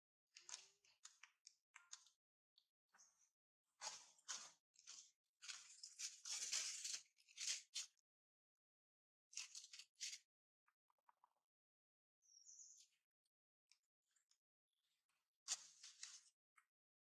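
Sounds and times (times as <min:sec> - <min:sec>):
scratchy rustling: 0:03.8 - 0:07.8.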